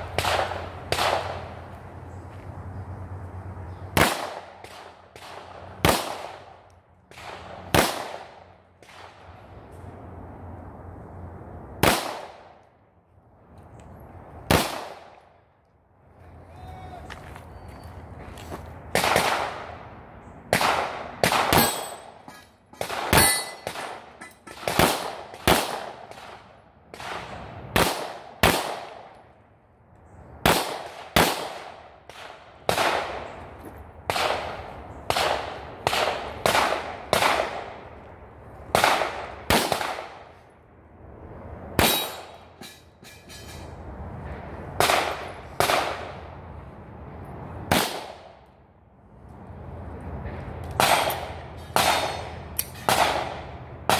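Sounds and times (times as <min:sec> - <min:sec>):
pistol shots: 0:00.1 - 0:01.4, 0:04.0 - 0:09.2, 0:11.8 - 0:12.6, 0:14.5 - 0:15.1, 0:18.9 - 0:19.7, 0:20.5 - 0:22.2, 0:22.8 - 0:29.1, 0:30.4 - 0:33.3, 0:34.1 - 0:37.8, 0:38.7 - 0:40.3, 0:44.8 - 0:46.1, 0:47.7 - 0:48.3, 0:50.8 - 0:52.3, 0:52.9 - 0:53.9.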